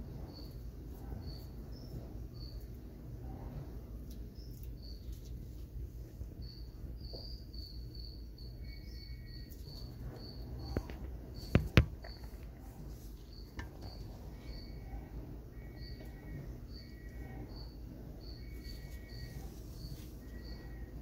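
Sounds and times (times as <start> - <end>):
crickets chirping: 0.0 - 21.0
sharp knocks: 11.4 - 12.4.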